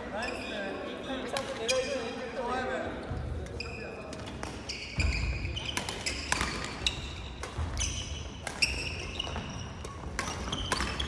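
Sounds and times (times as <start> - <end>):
racket hitting shuttlecock: 4.1 - 11.0.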